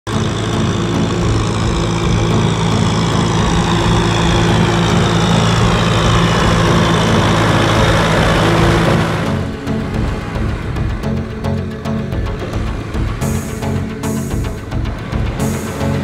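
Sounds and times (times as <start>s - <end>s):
tractor diesel engine running: 0.0s - 16.0s
water churning around wheels: 0.2s - 11.1s.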